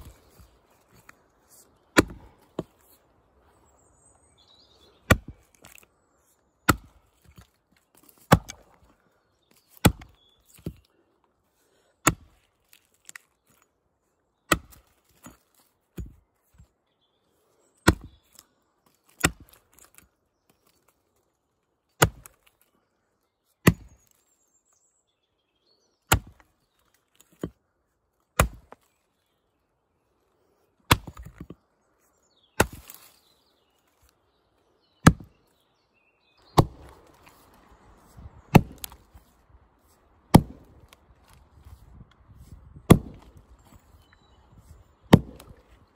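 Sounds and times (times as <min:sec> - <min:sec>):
axe chopping a log: 0:01.9 - 0:02.8, 0:05.0 - 0:05.9, 0:06.6 - 0:08.8, 0:09.5 - 0:10.8, 0:12.0 - 0:13.6, 0:14.5 - 0:16.2, 0:17.8 - 0:18.4, 0:19.1 - 0:20.0, 0:22.0 - 0:22.6, 0:23.6 - 0:24.1, 0:26.1 - 0:26.5, 0:27.2 - 0:27.6, 0:28.3 - 0:28.9, 0:30.8 - 0:31.6, 0:32.6 - 0:33.2, 0:35.0 - 0:35.4, 0:36.5 - 0:37.5, 0:38.1 - 0:39.2, 0:40.3 - 0:44.0, 0:44.6 - 0:45.9.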